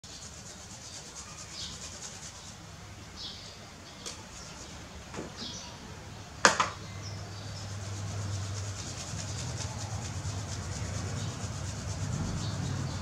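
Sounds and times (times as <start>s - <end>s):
plastic bottle rubbed between palms: 0.0s - 2.6s, 7.4s - 13.0s
sharp knock: 6.4s - 6.8s.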